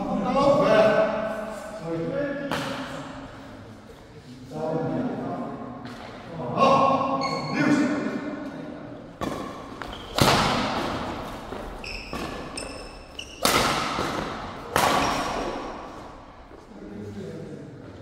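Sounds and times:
rackets hitting shuttlecock: 9.2s - 15.8s
shoes squeaking on court: 9.6s - 10.4s, 11.2s - 13.7s.

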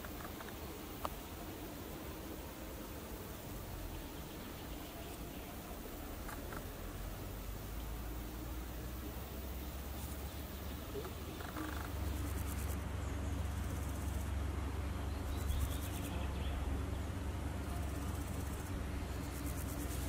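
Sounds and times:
insect stridulation: 0.0s - 20.0s
steady low rumble: 0.0s - 20.0s.

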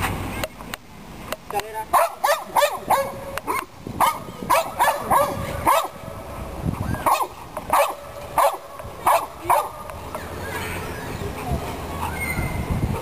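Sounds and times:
dog barking: 1.9s - 6.0s, 7.0s - 10.0s.

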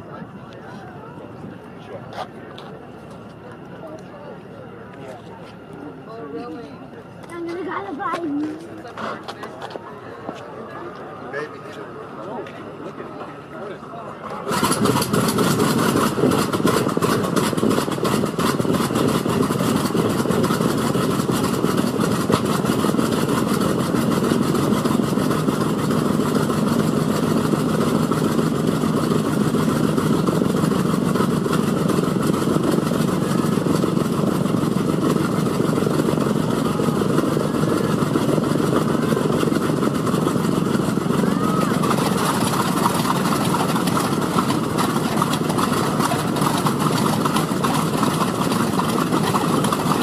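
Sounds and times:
radial aircraft engine idling: 0.0s - 50.0s.

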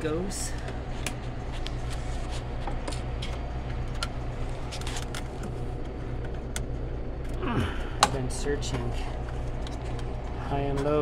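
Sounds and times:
ice machine compressor hum: 0.0s - 11.0s
plastic parts clicking and scraping: 4.0s - 5.5s.

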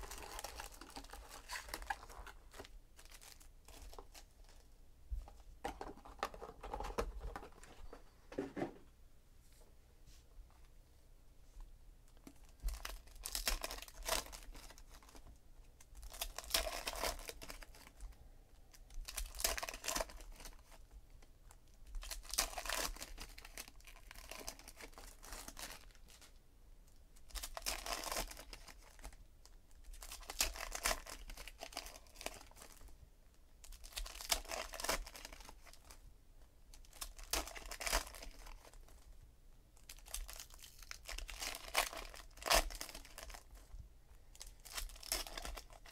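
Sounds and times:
card pack wrappers tearing: 0.0s - 4.0s, 12.8s - 15.2s, 16.0s - 17.9s, 19.0s - 20.6s, 22.0s - 26.2s, 27.3s - 29.1s, 29.9s - 32.8s, 33.7s - 35.8s, 36.8s - 38.8s, 39.8s - 43.4s, 44.4s - 45.9s.

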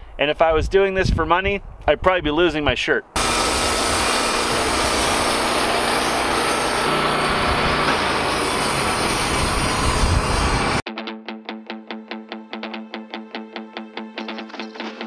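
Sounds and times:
band sawmill cutting log: 3.2s - 10.8s.

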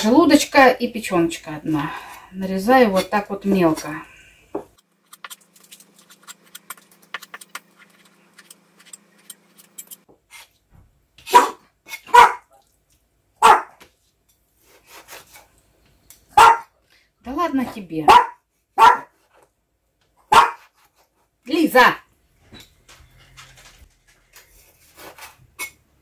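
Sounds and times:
dog barking: 11.3s - 12.5s, 13.4s - 13.8s, 16.3s - 16.8s, 18.1s - 19.2s, 20.3s - 20.7s.

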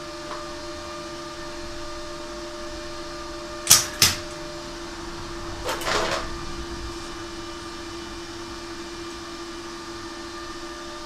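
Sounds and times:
welder cooling fan humming: 0.0s - 11.0s
welding arc strikes: 3.6s - 4.4s.

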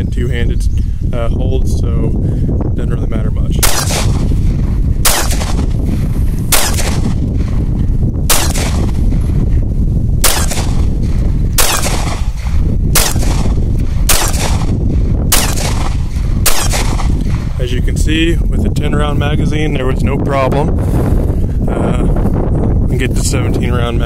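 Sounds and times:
steady low rumble: 0.0s - 24.0s
pistol shots: 3.6s - 5.8s, 6.5s - 7.5s, 8.3s - 9.0s, 10.2s - 17.4s.

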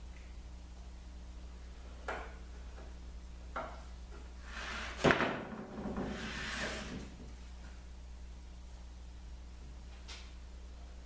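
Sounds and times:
plastic scraper scraping wood: 5.9s - 7.1s.

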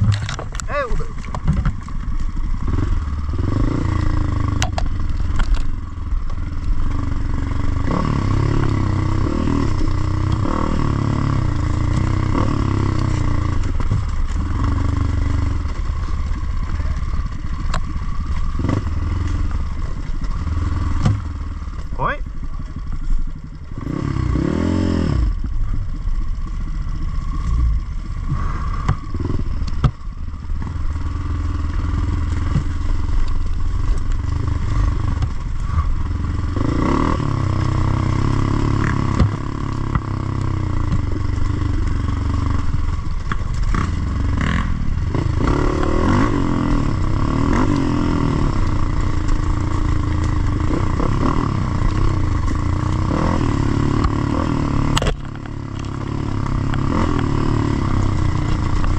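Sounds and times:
dirt bike engine revving: 0.0s - 22.2s, 23.7s - 25.5s, 26.2s - 58.9s
bike knocks and clatter: 21.0s - 21.4s, 28.8s - 30.0s, 32.0s - 32.8s, 38.8s - 40.2s.

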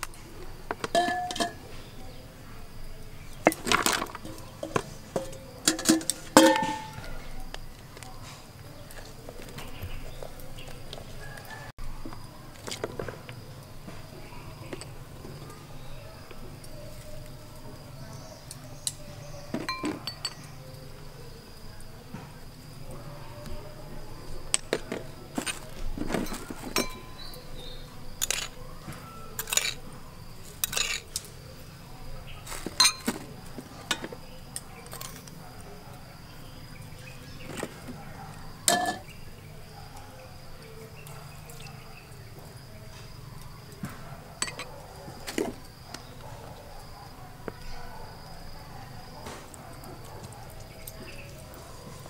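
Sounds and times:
bowl and spoon clinking: 0.7s - 1.8s, 3.4s - 7.3s, 19.5s - 20.6s, 24.5s - 28.6s, 29.4s - 29.8s, 30.6s - 31.2s, 32.6s - 34.2s, 38.6s - 39.2s, 44.4s - 45.6s.

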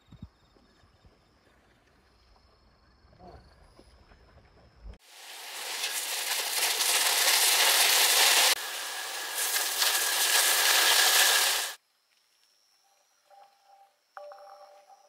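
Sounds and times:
meat sizzling on griddle: 5.0s - 11.8s.

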